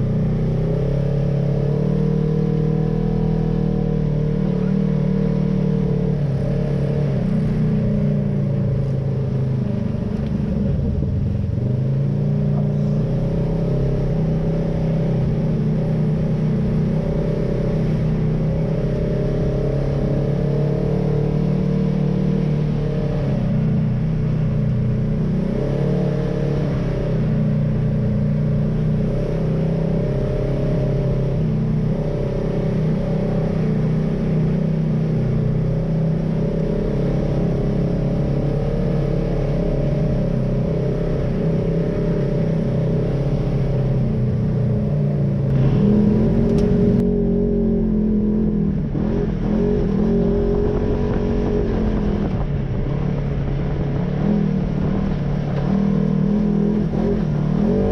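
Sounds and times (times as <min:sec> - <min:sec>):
vehicle engine running: 0:00.0 - 0:57.9.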